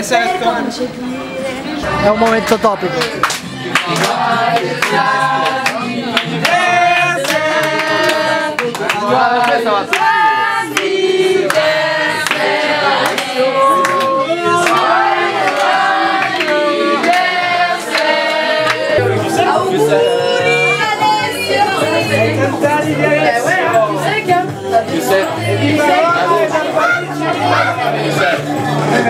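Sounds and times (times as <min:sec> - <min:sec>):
group singing in chorus: 0:01.2 - 0:29.0
hand claps: 0:03.0 - 0:06.6, 0:07.2 - 0:10.1, 0:11.5 - 0:17.3.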